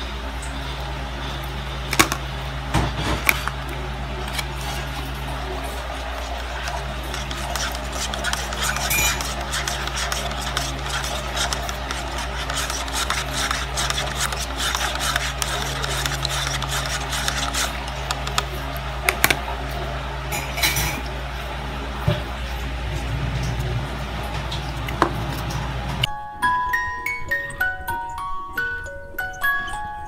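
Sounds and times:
steady low hum: 0:00.0 - 0:26.1
spoon stirring coffee in a cup: 0:01.9 - 0:02.2, 0:03.1 - 0:19.4.

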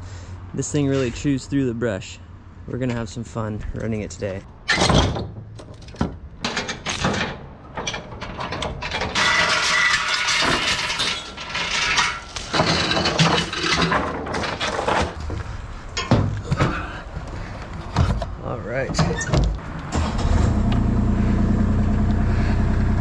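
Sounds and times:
metal chains clanking: 0:04.7 - 0:15.2.

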